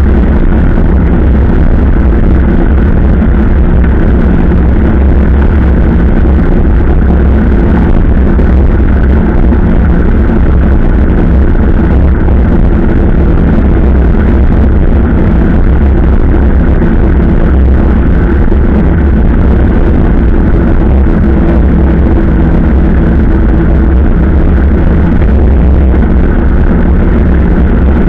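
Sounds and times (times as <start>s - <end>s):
wind rumble on microphone: 0.0s - 28.0s.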